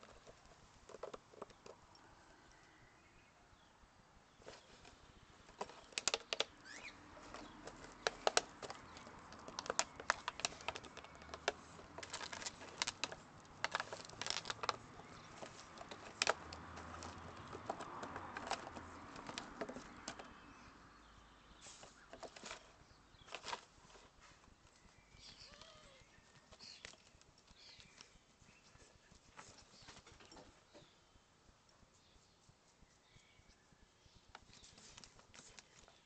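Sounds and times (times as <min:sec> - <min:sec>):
plastic bottle crackling as dog chews: 0:00.0 - 0:01.8, 0:05.5 - 0:20.5.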